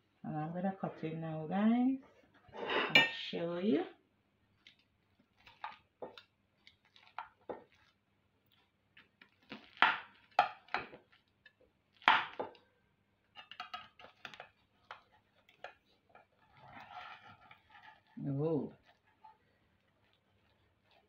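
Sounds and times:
metal spatula scraping glass dish: 0:02.6 - 0:03.2, 0:13.4 - 0:21.0.

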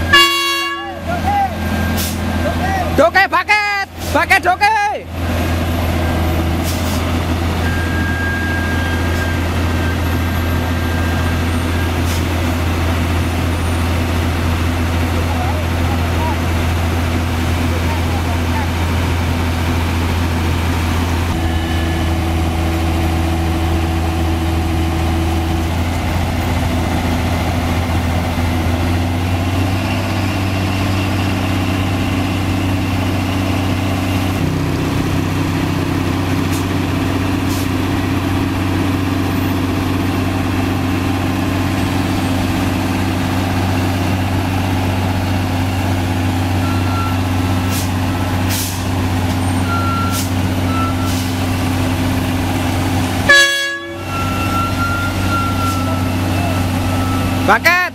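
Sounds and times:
diesel truck engine idling: 0:00.0 - 0:57.9
brief high beeps: 0:53.3 - 0:57.4.

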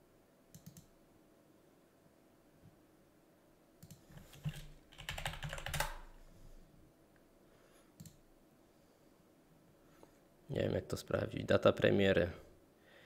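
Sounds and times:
keyboard typing: 0:00.5 - 0:00.9, 0:03.8 - 0:06.1.

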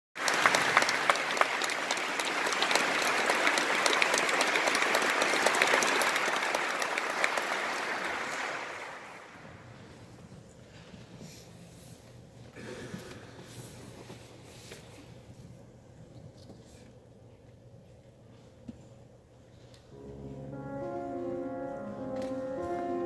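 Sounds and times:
audience applauding: 0:00.2 - 0:09.4.

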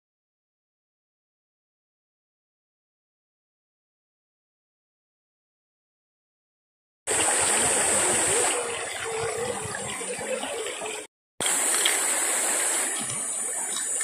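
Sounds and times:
stream running over rocks: 0:07.1 - 0:14.0.

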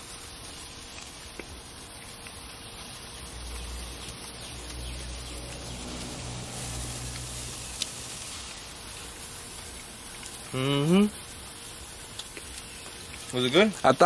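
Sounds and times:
chicken sizzling on a grill: 0:00.0 - 0:14.0
low rumble: 0:03.1 - 0:08.7.

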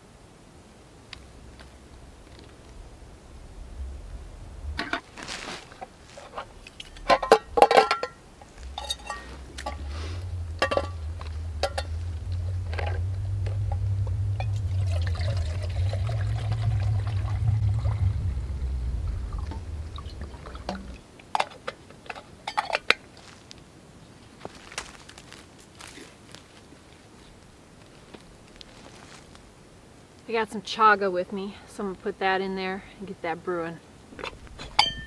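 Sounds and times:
handling clicks and clatter: 0:04.8 - 0:13.8
water pouring into cup: 0:14.6 - 0:17.4.

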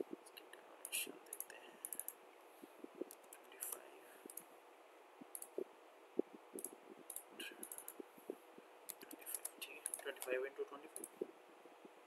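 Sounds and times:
computer mouse clicks: 0:00.8 - 0:02.2, 0:03.0 - 0:04.5, 0:05.3 - 0:05.6, 0:06.6 - 0:08.0, 0:08.9 - 0:11.2.

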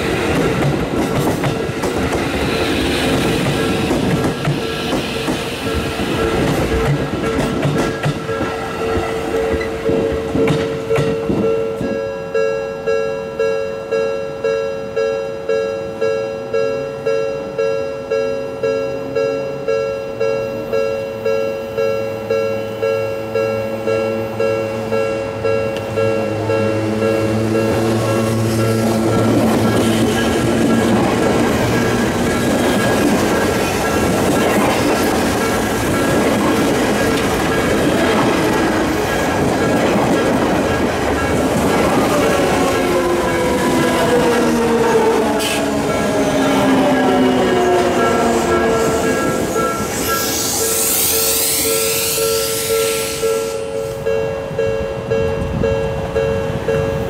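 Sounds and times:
electric train rumble: 0:00.0 - 0:57.0
level crossing bell clanging: 0:08.2 - 0:50.7.

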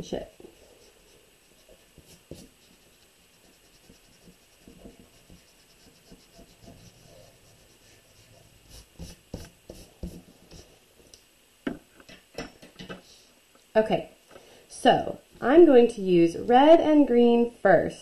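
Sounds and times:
eraser rubbing on paper: 0:00.4 - 0:10.8
paper and pencil knocks: 0:03.5 - 0:06.8, 0:09.0 - 0:10.6, 0:11.7 - 0:13.0.

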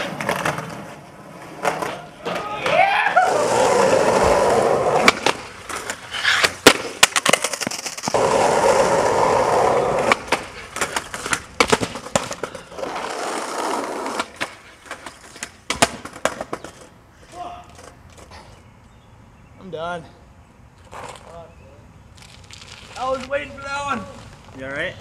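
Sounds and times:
skateboard clattering on pavement: 0:00.0 - 0:17.0
skateboard landing: 0:00.0 - 0:17.0
skateboard wheels rolling on asphalt: 0:00.0 - 0:19.2, 0:22.0 - 0:25.0
skateboard tail popping: 0:01.6 - 0:16.9.

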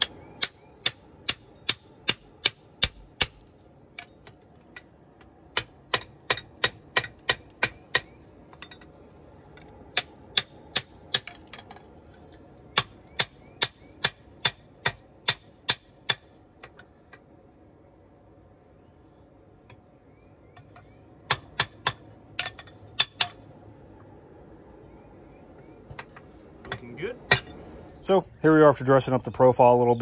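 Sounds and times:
hammer striking metal: 0:00.0 - 0:03.4, 0:26.7 - 0:27.6.

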